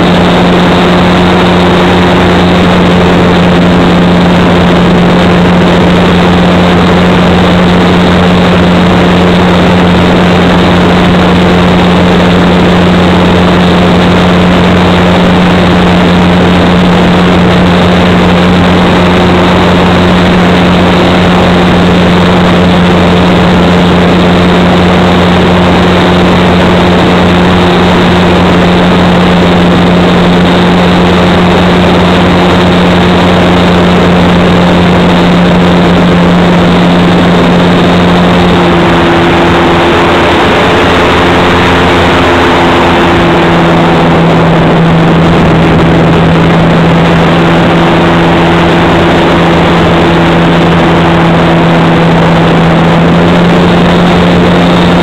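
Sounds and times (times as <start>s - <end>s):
electric motor and propeller drone: 0.0s - 55.0s
rush of air: 0.0s - 55.0s.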